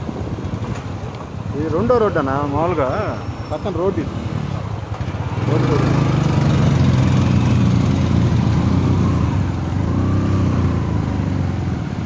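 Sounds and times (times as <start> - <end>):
motorcycle engine running: 4.8 - 11.6.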